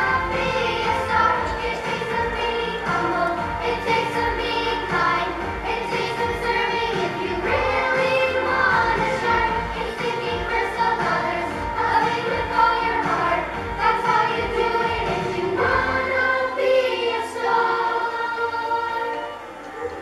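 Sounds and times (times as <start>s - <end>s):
children's choir singing: 0.0s - 20.0s.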